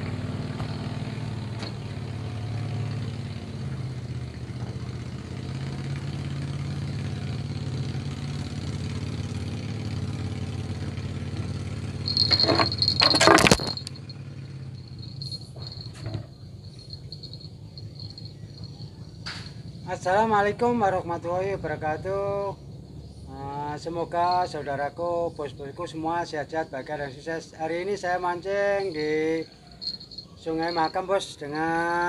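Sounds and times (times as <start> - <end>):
engine humming: 0.0 - 25.6, 27.7 - 32.0
insects buzzing: 8.8 - 32.0.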